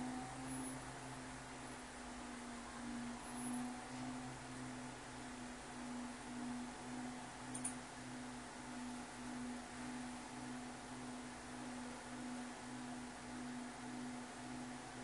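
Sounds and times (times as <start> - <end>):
washing machine motor hum: 0.0 - 15.0
light click: 7.5 - 7.8.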